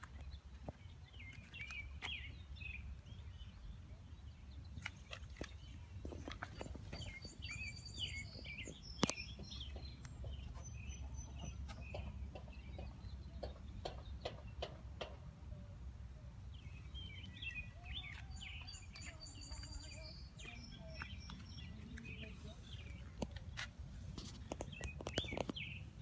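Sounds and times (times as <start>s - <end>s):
small birds chirping and trilling: 0.0s - 26.0s.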